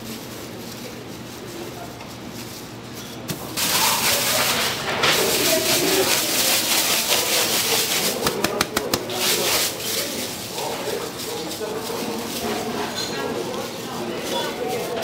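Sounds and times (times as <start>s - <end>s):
murmur of voices: 0.0s - 15.0s
loud steady hiss: 3.5s - 8.5s.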